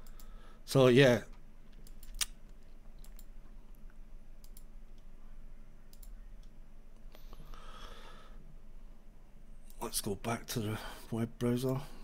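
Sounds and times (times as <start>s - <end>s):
computer mouse clicks: 0.0s - 0.3s, 1.7s - 5.1s, 5.9s - 7.1s
low steady hum: 0.0s - 12.0s.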